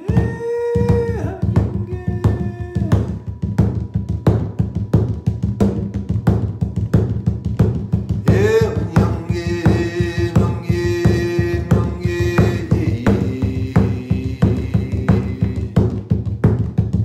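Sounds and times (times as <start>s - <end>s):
held sung tone: 0.0s - 3.3s, 8.2s - 16.0s
drum beaten steadily: 0.0s - 17.0s.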